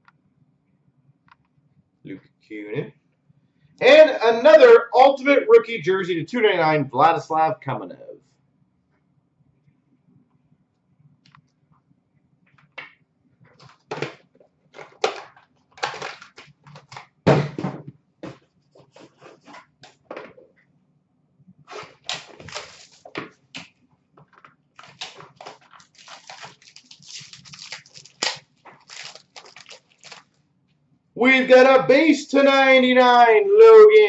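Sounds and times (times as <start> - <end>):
foil wrapper crinkling and tearing: 21.8 - 23.1, 24.8 - 30.4.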